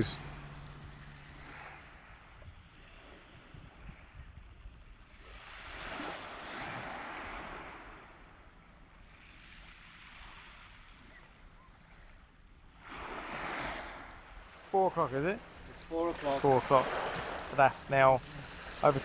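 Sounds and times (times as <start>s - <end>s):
wind rumble on microphone: 0.0s - 14.6s
waves washing onto shingle: 4.9s - 19.0s.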